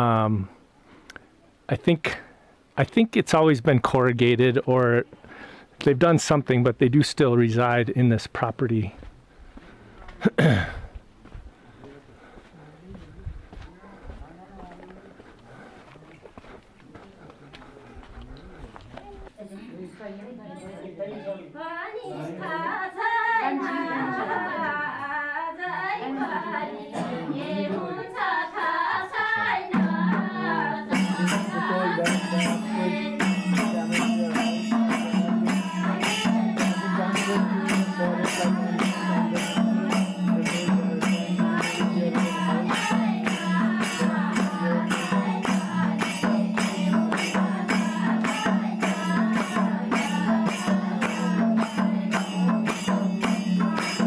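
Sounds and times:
women singing: 21.5s - 54.0s
fast rhythmic percussion: 29.6s - 54.0s.

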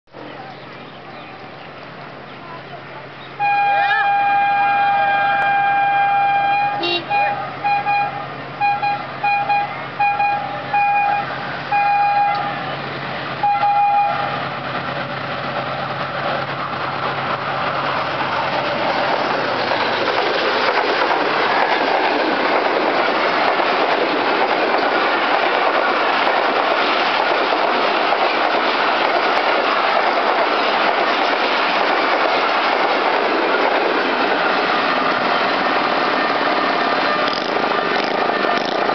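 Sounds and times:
train rushing past: 3.0s - 38.9s
locomotive horn blasts: 3.4s - 12.7s, 13.4s - 14.4s.

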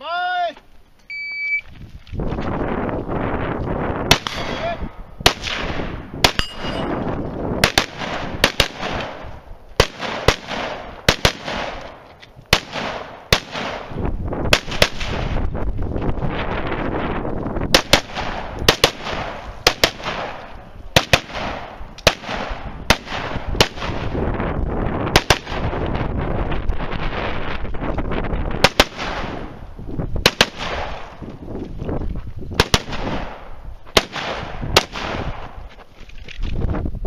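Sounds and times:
rifle firing: 4.1s - 7.0s, 7.6s - 15.3s, 17.8s - 24.1s, 28.6s - 29.5s, 30.2s - 31.1s, 32.6s - 35.6s.

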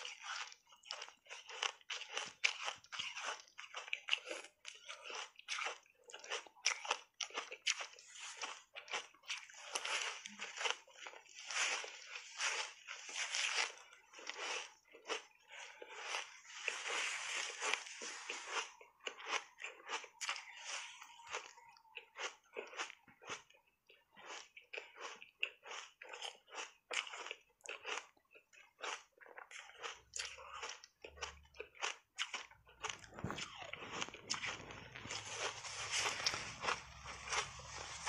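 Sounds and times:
ice crunching in mouth: 0.0s - 23.5s, 24.2s - 38.0s.

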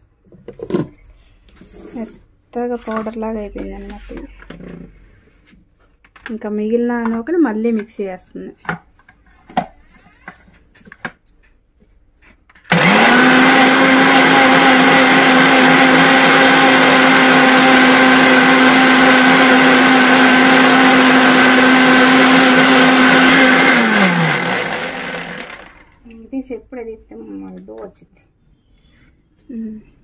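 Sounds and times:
mixer grinder motor whining: 12.7s - 26.0s.

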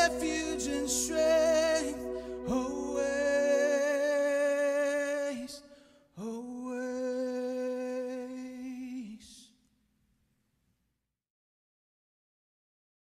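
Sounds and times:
low bass tone: 0.0s - 4.6s
man singing long held notes: 0.0s - 9.5s.

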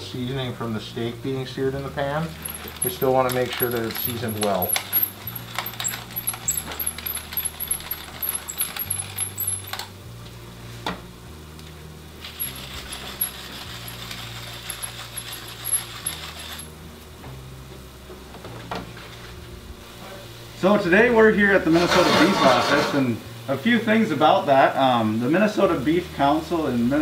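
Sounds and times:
pepper grinder crackling: 2.2s - 10.0s, 12.2s - 16.8s.

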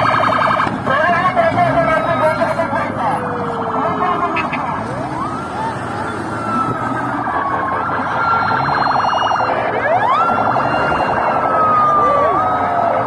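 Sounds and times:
police sirens wailing: 0.0s - 13.0s.

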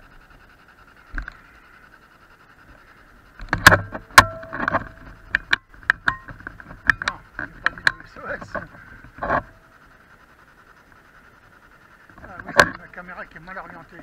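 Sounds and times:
faint high hum: 0.0s - 14.0s
sharp clicks and knocks: 3.4s - 9.6s, 12.1s - 12.9s.

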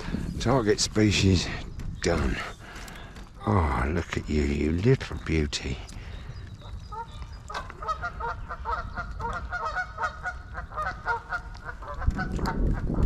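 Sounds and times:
geese honking: 6.6s - 12.6s.

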